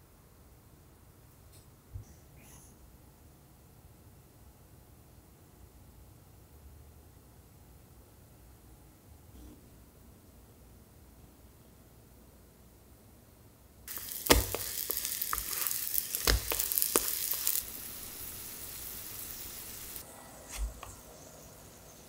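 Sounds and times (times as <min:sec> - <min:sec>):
pancakes sizzling in oil: 0:13.9 - 0:22.0.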